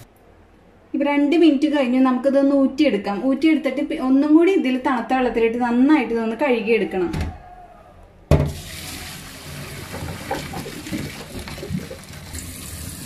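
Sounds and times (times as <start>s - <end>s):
water pouring into steel sink: 8.5s - 13.0s.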